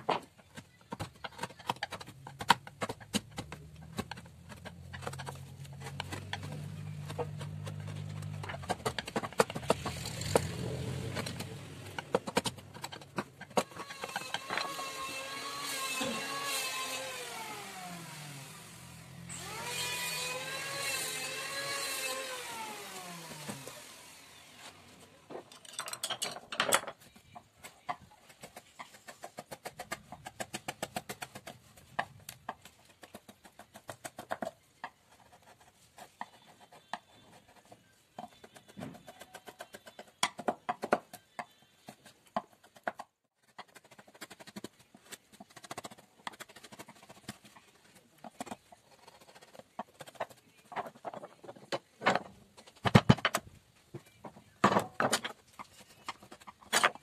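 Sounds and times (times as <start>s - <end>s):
engine humming: 2.2s - 13.8s.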